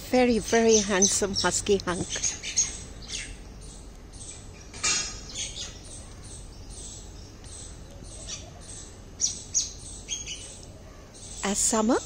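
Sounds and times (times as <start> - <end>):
bird chirping and whistling: 7.6 - 10.6.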